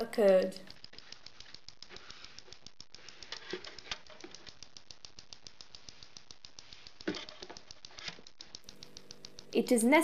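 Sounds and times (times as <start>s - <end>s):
fast even electronic clicking: 0.0s - 10.0s.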